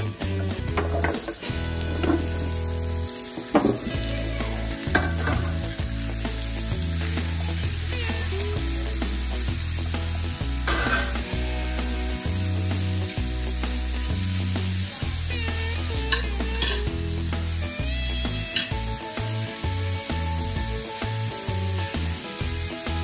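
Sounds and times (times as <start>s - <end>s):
background music with bass: 0.0s - 23.0s
food sizzling in hot oil: 0.0s - 23.0s
spoon knocking on pan: 0.8s - 2.3s, 3.4s - 4.0s.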